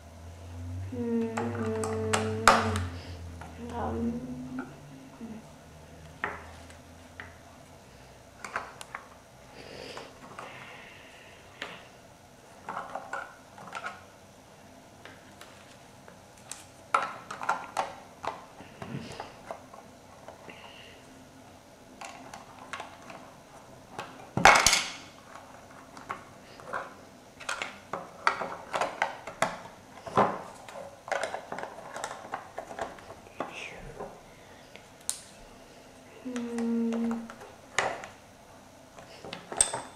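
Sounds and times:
plastic bricks clicking and clattering: 0:23.9 - 0:33.6.

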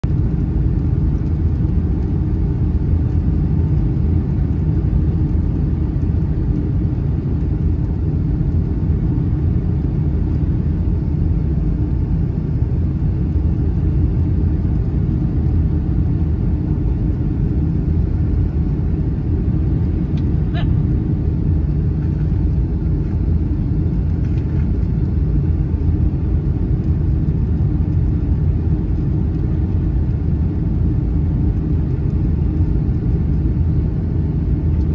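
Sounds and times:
airplane cabin engine rumble: 0:00.0 - 0:34.9.

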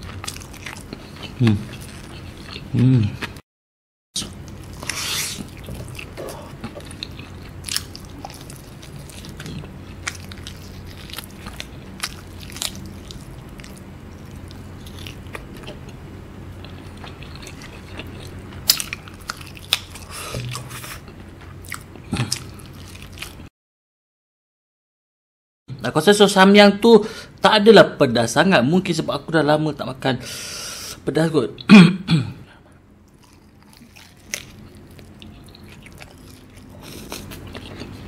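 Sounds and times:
person biting and chewing: 0:04.2 - 0:16.0, 0:16.6 - 0:23.4, 0:33.1 - 0:38.0.

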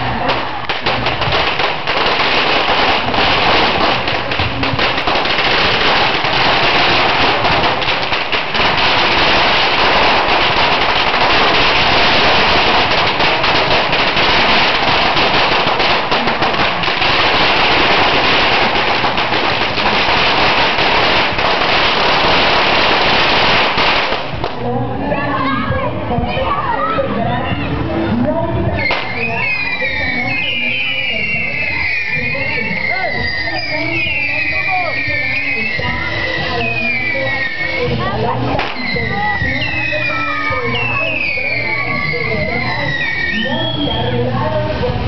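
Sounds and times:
crackling sparks: 0:00.0 - 0:24.7, 0:28.8 - 0:44.0
firecrackers rapid bangs: 0:00.0 - 0:24.7, 0:28.8 - 0:44.1.

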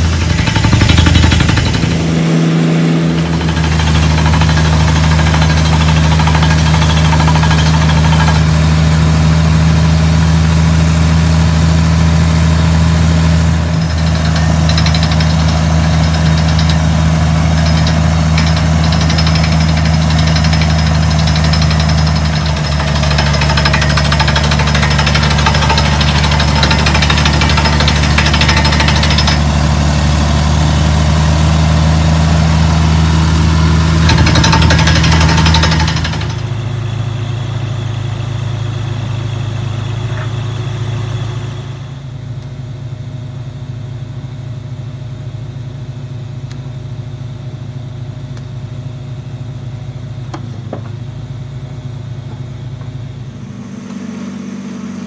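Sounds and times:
drilling rig engine running: 0:00.0 - 0:42.1.

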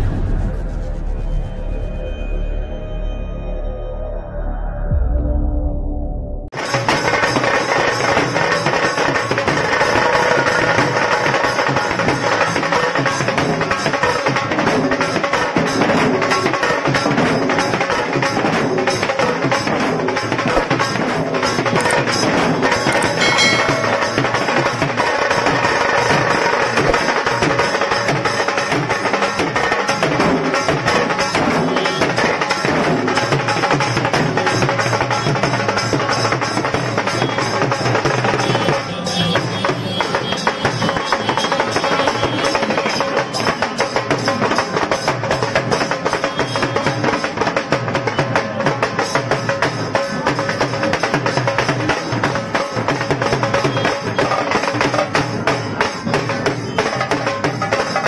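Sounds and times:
large drums beaten with sticks: 0:06.6 - 0:46.3.

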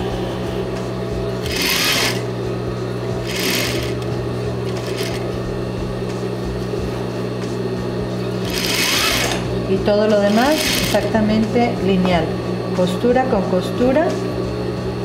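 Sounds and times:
sewing machine motor humming: 0:01.4 - 0:02.4, 0:03.2 - 0:05.4, 0:08.4 - 0:11.2.

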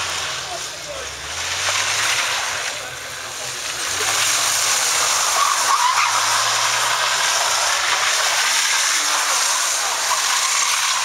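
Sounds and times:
car engine at high revs: 0:00.0 - 0:11.0
spinning tyres hissing: 0:00.0 - 0:11.0
tyre squeal: 0:04.6 - 0:11.0.

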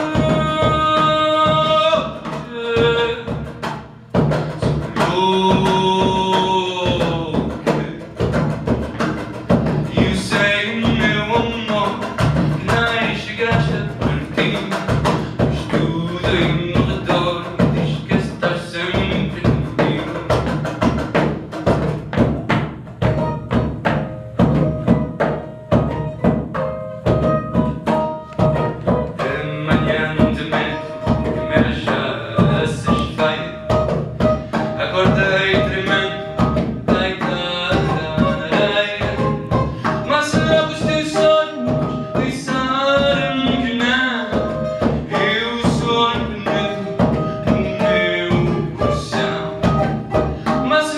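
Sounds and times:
person singing: 0:00.0 - 0:03.5, 0:04.6 - 0:08.1, 0:09.8 - 0:20.5, 0:28.2 - 0:50.9
person beatboxing into microphone: 0:00.0 - 0:21.2, 0:27.6 - 0:50.9
bouzouki: 0:00.0 - 0:50.9
double bass: 0:00.0 - 0:50.9.

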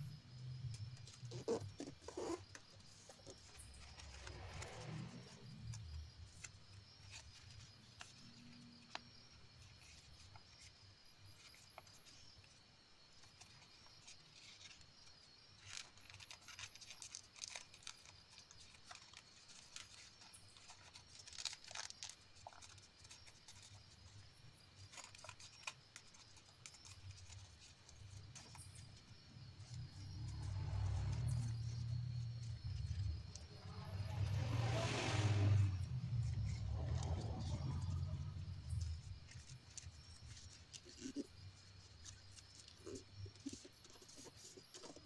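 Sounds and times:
paper being folded: 0:15.6 - 0:24.2.

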